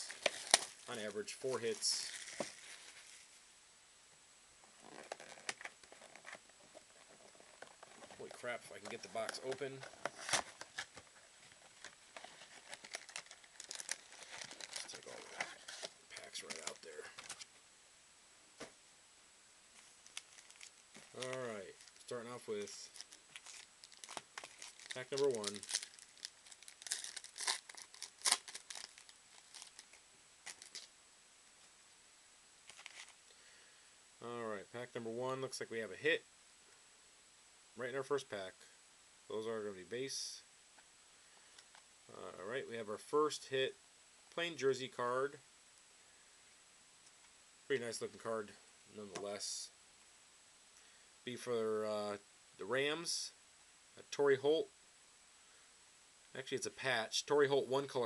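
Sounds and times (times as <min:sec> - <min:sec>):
card pack wrapper tearing: 0:00.0 - 0:02.9, 0:04.8 - 0:11.0, 0:11.6 - 0:17.5, 0:20.0 - 0:30.9.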